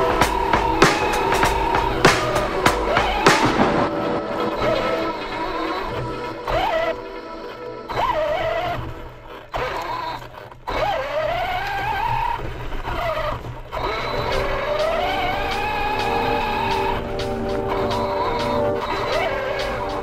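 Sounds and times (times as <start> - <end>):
toy car motor whining: 6.4 - 17.0, 17.7 - 20.0.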